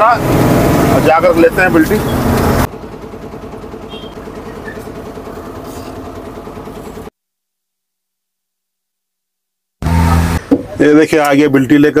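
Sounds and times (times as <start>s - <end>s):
diesel engine idling: 0.0s - 7.1s.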